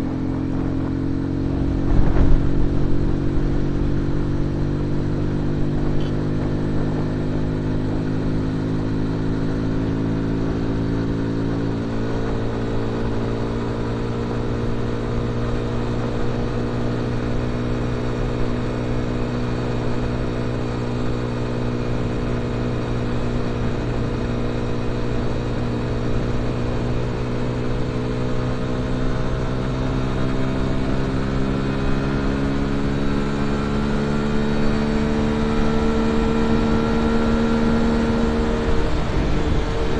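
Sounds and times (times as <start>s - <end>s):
constant rushing noise: 0.0s - 7.4s, 35.0s - 39.9s
motorcycle engine accelerating: 0.0s - 39.9s.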